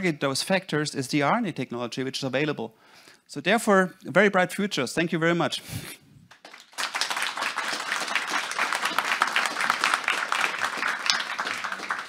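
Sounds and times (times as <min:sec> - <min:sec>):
audience applauding: 0:06.3 - 0:12.0.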